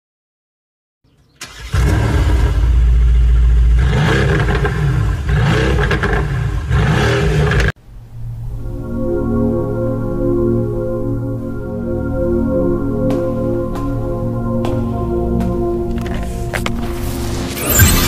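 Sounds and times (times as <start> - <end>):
car engine starting and revving: 1.4 - 7.8, 16.0 - 18.0.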